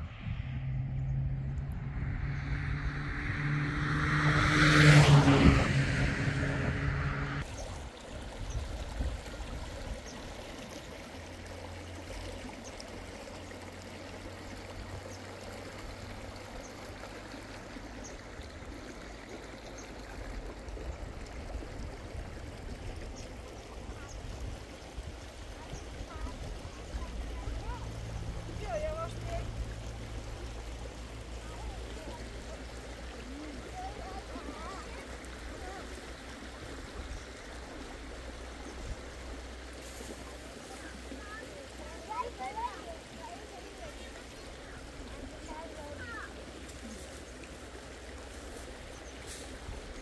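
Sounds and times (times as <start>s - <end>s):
steady rushing noise: 0.0s - 7.4s
vehicle engine humming: 0.0s - 7.5s, 26.3s - 39.6s.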